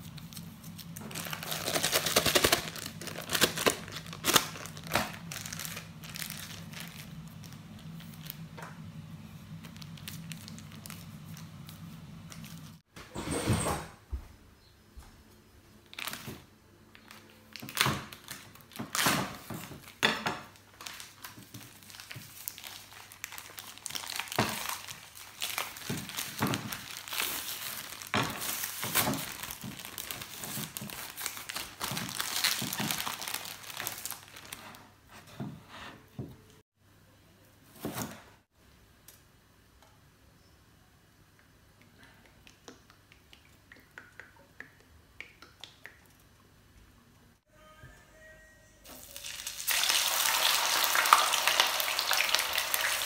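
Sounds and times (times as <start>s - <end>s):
plastic bag crinkling and tearing: 0.0s - 8.5s, 9.6s - 12.6s, 15.8s - 20.0s, 20.6s - 34.8s, 48.9s - 53.0s.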